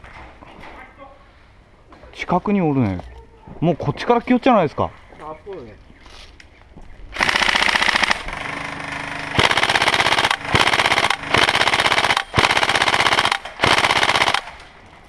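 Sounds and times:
airsoft rifle firing bursts: 0:07.2 - 0:14.7.

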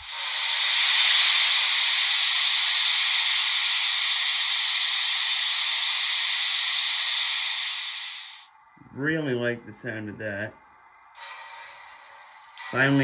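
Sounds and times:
hiss of venting steam: 0:00.0 - 0:08.5, 0:11.2 - 0:13.0.

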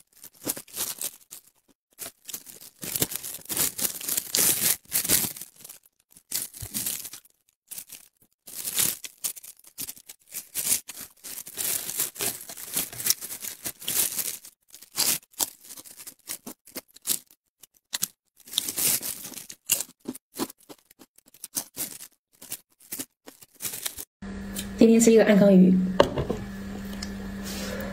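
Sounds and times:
crispy fish tearing: 0:00.0 - 0:24.1
plastic gloves crinkling: 0:00.0 - 0:24.1
chewing: 0:14.9 - 0:24.0.

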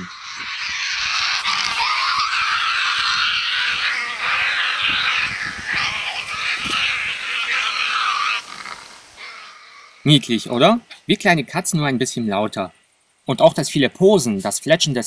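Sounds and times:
young animals screeching: 0:00.0 - 0:10.1.

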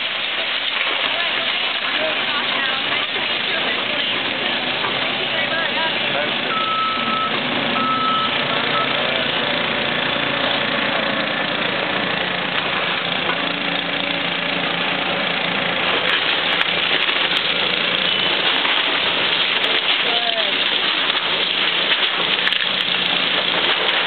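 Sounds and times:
excavator diesel engine running: 0:00.0 - 0:24.0
sharp cracks: 0:15.8 - 0:24.0
water hose spray hissing: 0:16.3 - 0:24.0.

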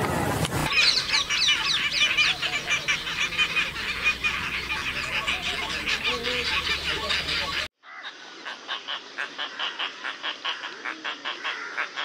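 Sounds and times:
storks calling: 0:00.7 - 0:12.0.

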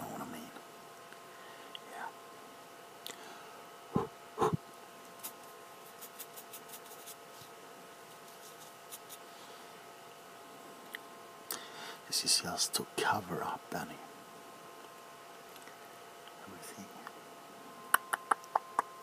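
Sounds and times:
faint electrical hum: 0:00.0 - 0:19.0.

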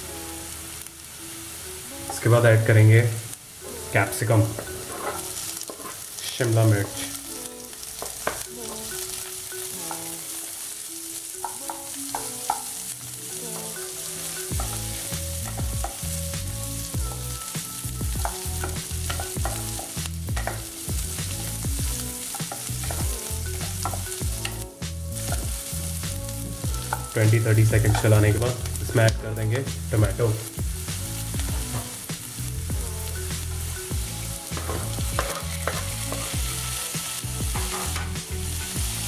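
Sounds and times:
vegetables sizzling in a pan: 0:00.0 - 0:39.0
spatula scraping and knocking pan: 0:04.0 - 0:07.1, 0:08.0 - 0:08.5, 0:11.4 - 0:12.8, 0:13.5 - 0:24.6, 0:26.7 - 0:28.8, 0:33.9 - 0:39.0.

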